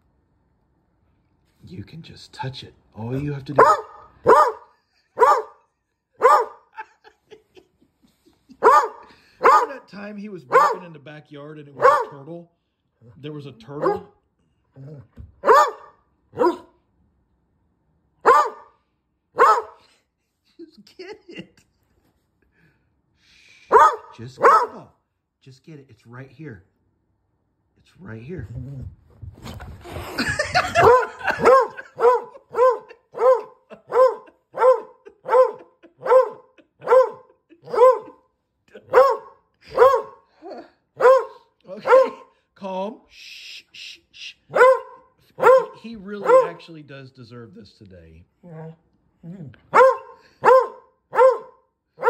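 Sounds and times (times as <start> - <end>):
dog barking: 3.6 - 5.6, 6.2 - 6.8, 8.6 - 9.9, 10.5 - 10.9, 11.8 - 12.3, 13.8 - 14.2, 15.4 - 16.8, 18.2 - 18.8, 19.4 - 19.8, 23.7 - 24.9, 30.6 - 38.2, 38.8 - 40.3, 41.0 - 42.3, 44.5 - 46.7, 49.7 - 52.0.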